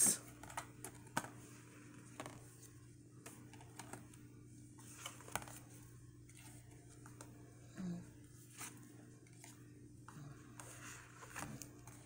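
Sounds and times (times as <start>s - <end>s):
low steady hum: 0.0s - 12.0s
cards clicking and tapping: 0.3s - 1.4s, 2.0s - 2.5s, 3.2s - 4.2s, 4.9s - 5.8s.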